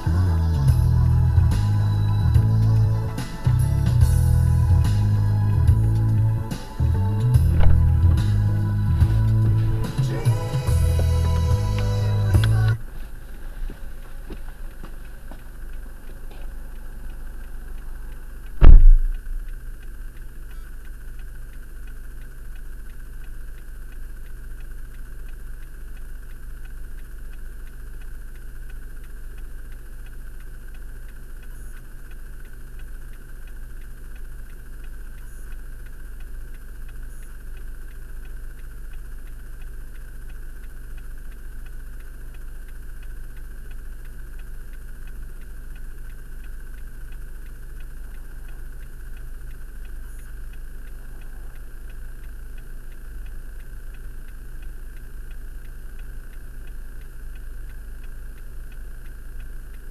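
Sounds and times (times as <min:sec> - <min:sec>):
car engine idling: 0:00.0 - 0:59.9
heavy thump: 0:07.4 - 0:08.3, 0:18.6 - 0:19.3.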